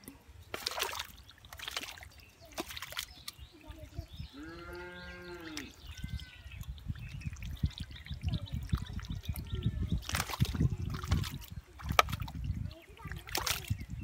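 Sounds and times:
hands splashing in muddy water: 0:00.0 - 0:03.6, 0:05.5 - 0:13.9
drawn-out animal call: 0:04.3 - 0:06.7.

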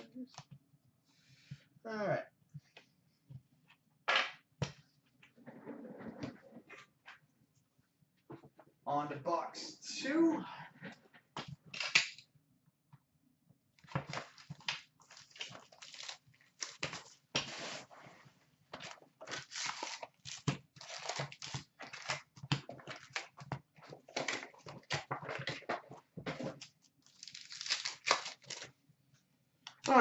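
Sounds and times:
cardboard rustling: 0:13.8 - 0:18.2, 0:18.8 - 0:28.7
foil wrappers crinkling and tearing: 0:13.9 - 0:17.9, 0:18.8 - 0:23.4, 0:26.5 - 0:28.7.

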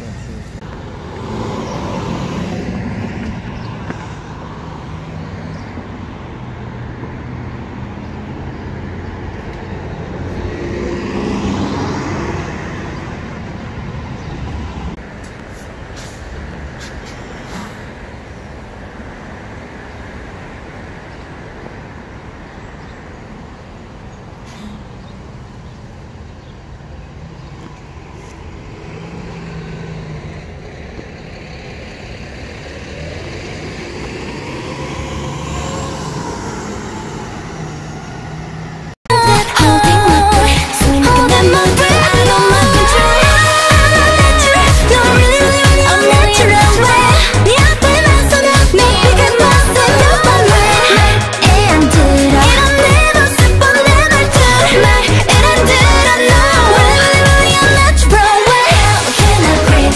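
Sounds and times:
bus passing: 0:00.0 - 0:59.9
city traffic: 0:00.0 - 0:59.9.

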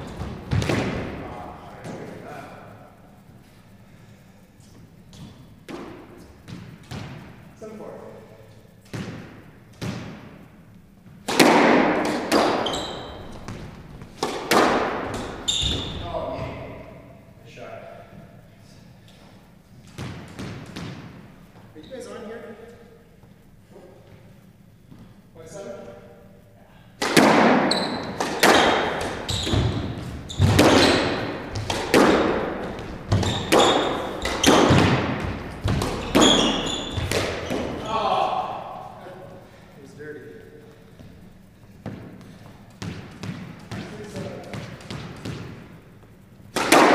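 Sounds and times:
racket striking squash ball: 0:00.0 - 0:02.1, 0:05.1 - 0:07.4, 0:08.8 - 0:10.5, 0:11.1 - 0:17.1, 0:19.8 - 0:21.3, 0:27.0 - 0:38.8, 0:41.8 - 0:46.9
ball hitting walls with echo: 0:00.0 - 0:02.5, 0:03.4 - 0:17.2, 0:19.0 - 0:22.1, 0:26.8 - 0:40.2, 0:40.8 - 0:46.9
shoes squeaking on hardwood floor: 0:12.5 - 0:14.4, 0:15.0 - 0:16.7, 0:27.6 - 0:37.9.

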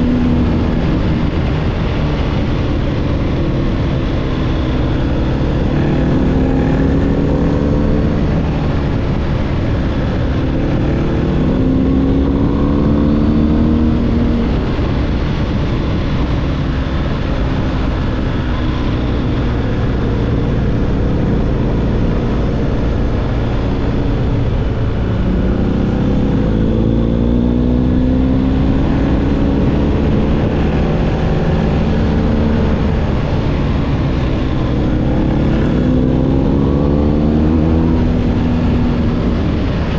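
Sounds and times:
motorcycle engine under way: 0:00.0 - 0:39.9
wind rush: 0:00.0 - 0:39.9.

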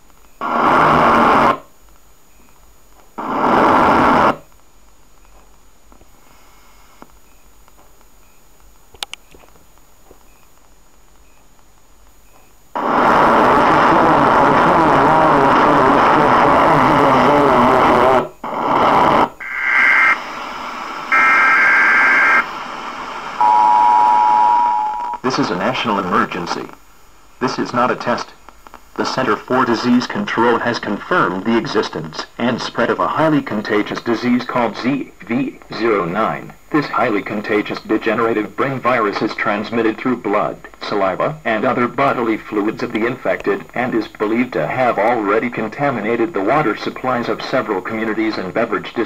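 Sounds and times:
radio static hiss: 0:00.0 - 0:49.0
harsh electronic alert bursts: 0:21.1 - 0:22.5, 0:23.4 - 0:25.2
two-tone attention signal: 0:23.4 - 0:25.2.

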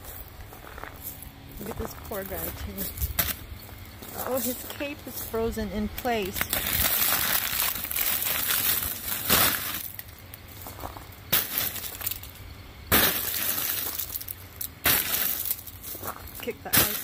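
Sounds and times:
ice crackling and tinkling: 0:06.0 - 0:17.0.

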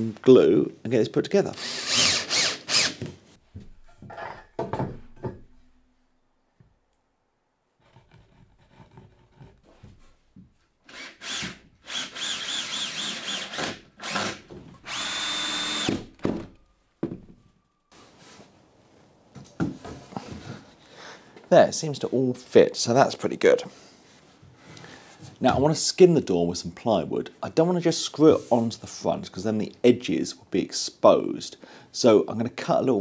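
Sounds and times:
cordless drill driving screws: 0:01.5 - 0:03.1, 0:10.9 - 0:16.2
wood being handled knocks: 0:17.0 - 0:17.4.

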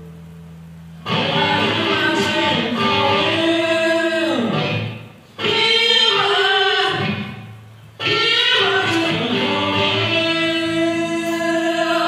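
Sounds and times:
live rock band with electric guitar: 0:00.0 - 0:12.0.

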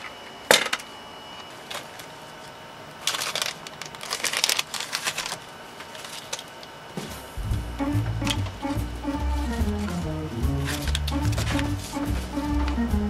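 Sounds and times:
plastic packaging crinkling: 0:02.9 - 0:06.8, 0:10.6 - 0:12.0.

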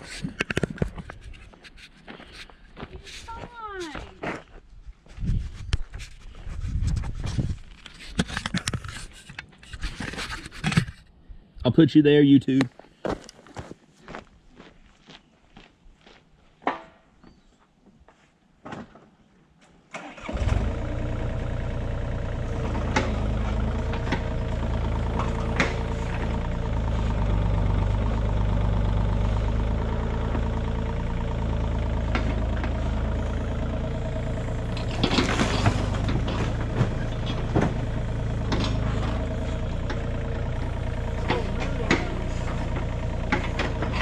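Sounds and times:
footsteps: 0:00.0 - 0:10.8, 0:12.7 - 0:16.2
utility vehicle engine idling: 0:20.0 - 0:44.0
knocks and clatter: 0:22.6 - 0:27.1, 0:32.0 - 0:33.0, 0:33.7 - 0:44.0.

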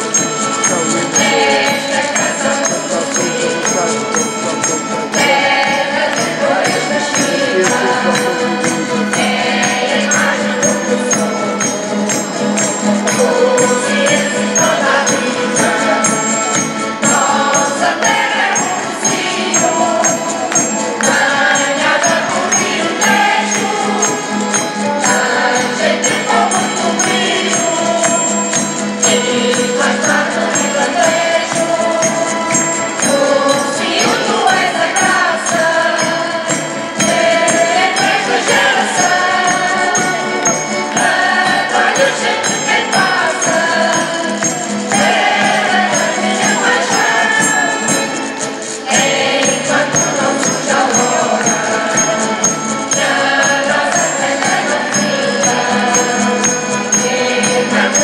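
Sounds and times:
instrumental accompaniment with beat: 0:00.0 - 0:58.0
mixed choir singing: 0:00.0 - 0:58.0.

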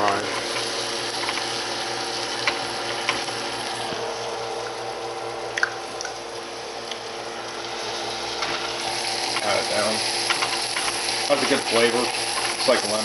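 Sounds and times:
fish sizzling in oil: 0:00.0 - 0:06.4, 0:07.2 - 0:13.0.

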